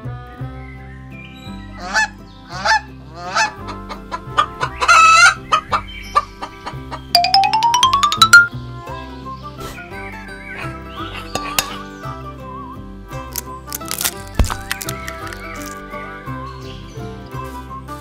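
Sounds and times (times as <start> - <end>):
playful background music: 1.6 - 18.0
pitch-bending calls: 7.2 - 8.5.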